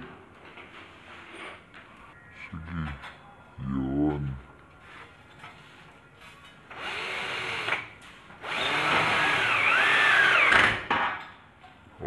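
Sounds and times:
cordless drill driving a screw: 6.8 - 7.8, 8.4 - 10.8.

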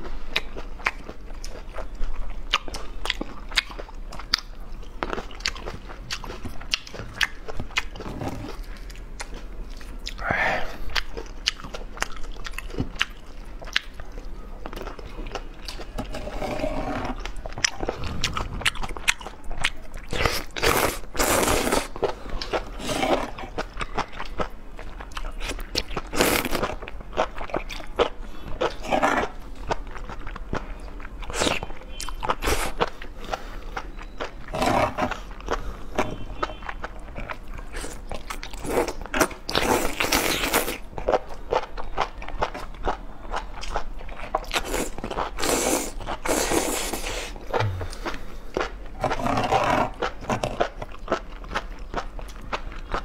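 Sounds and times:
wet crunchy chewing: 10.8 - 53.0
slurping noodles: 16.0 - 17.3, 22.8 - 23.5, 44.6 - 48.2, 49.0 - 50.6.

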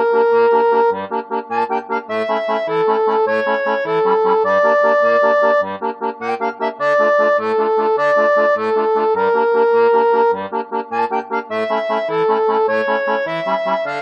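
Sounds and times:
upbeat accordion-like music: 0.0 - 14.0.

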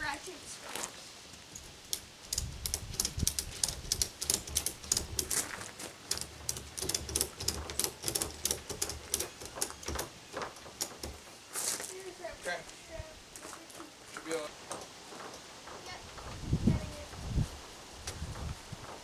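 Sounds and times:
strap buckle clicking and rattling: 1.5 - 11.3.

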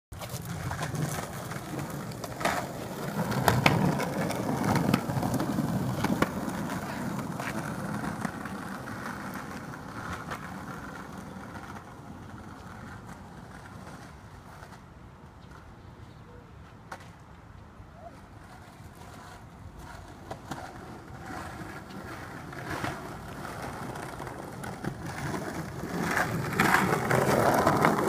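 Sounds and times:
skateboard wheels rolling on concrete: 0.1 - 28.0
sharp skateboard clicks: 0.2 - 15.7.

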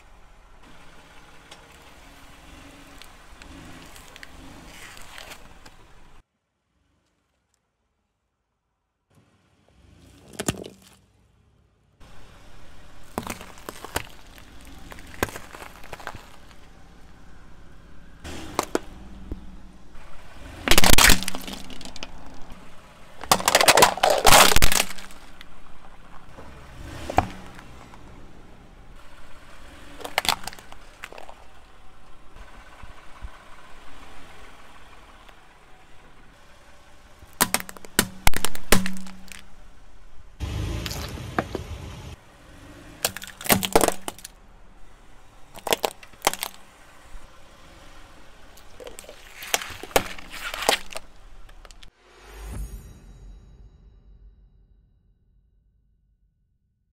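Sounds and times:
car tyre crushing plastic containers: 0.0 - 6.2, 10.0 - 11.1, 12.0 - 41.8, 42.9 - 51.9
plastic cracking and crunching: 13.0 - 16.6, 20.7 - 22.6, 23.2 - 25.5, 30.0 - 31.6, 37.3 - 39.5, 43.0 - 44.3, 45.5 - 46.7, 48.6 - 51.9.

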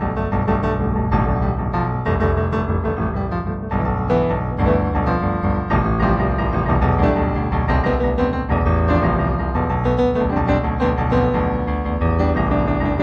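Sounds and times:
improvised piano music: 0.0 - 13.0.

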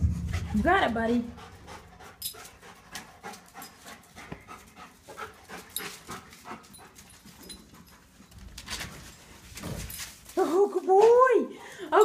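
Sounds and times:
dog panting: 0.0 - 9.6.

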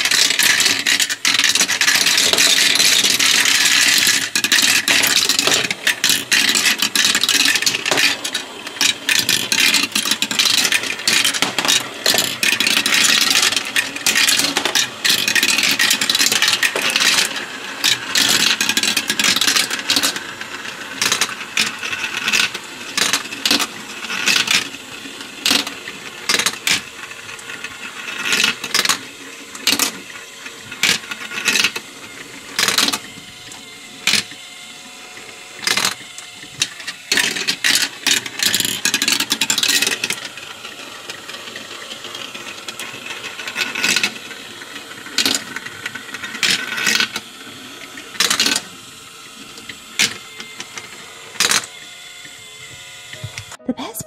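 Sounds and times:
glass marbles clattering on plastic: 0.0 - 20.2
motorized lift humming: 29.3 - 54.0.

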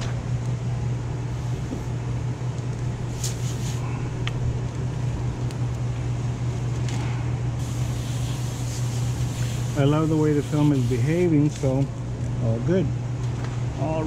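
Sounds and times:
low mechanical hum: 0.0 - 14.0
short hisses: 3.1 - 4.0, 7.6 - 11.0.

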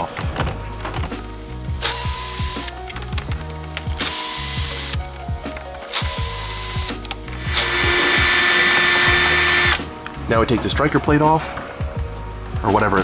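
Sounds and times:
cordless drill spinning: 1.8 - 2.7, 4.0 - 5.0, 5.9 - 9.8.

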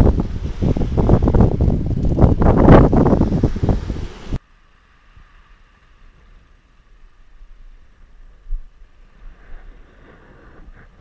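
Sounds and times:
wind buffeting microphone: 0.0 - 4.4.

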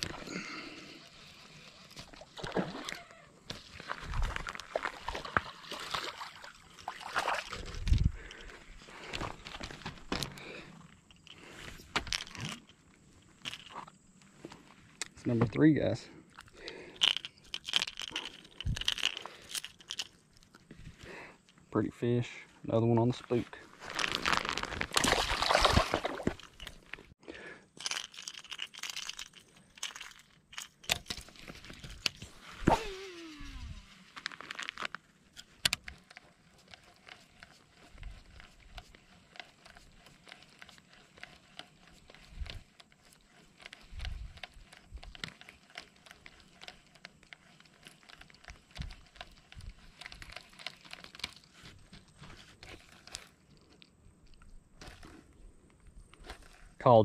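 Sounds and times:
fishing tackle rustling and scraping: 0.0 - 57.0.

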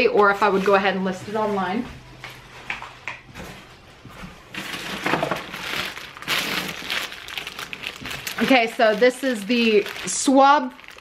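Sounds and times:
plastic bag crinkling: 4.5 - 11.0.

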